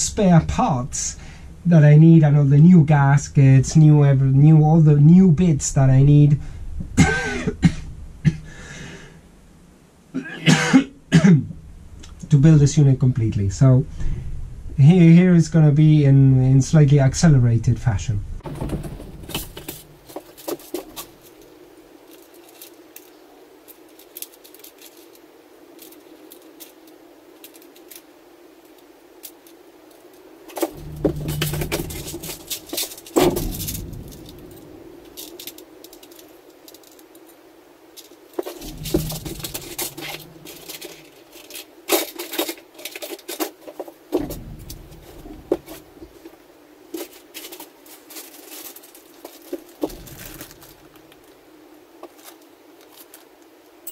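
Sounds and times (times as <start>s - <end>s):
faint steady hum: 0.0s - 53.9s
heavier knocks and thumps: 18.4s - 21.2s, 30.5s - 35.6s, 38.4s - 41.1s, 44.1s - 46.4s, 49.5s - 51.1s
small parts clinking and rattling: 18.4s - 51.4s, 52.0s - 53.9s.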